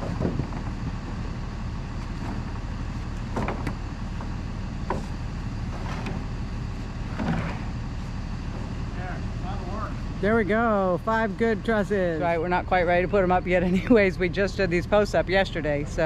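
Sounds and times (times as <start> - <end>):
wooden trusses knocking: 0.0 - 1.4, 2.0 - 6.4, 7.0 - 7.8.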